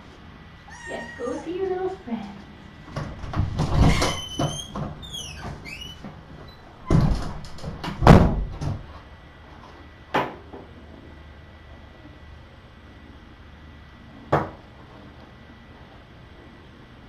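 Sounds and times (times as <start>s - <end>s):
door shutting with heavy thuds: 2.9s - 6.2s, 6.8s - 8.9s.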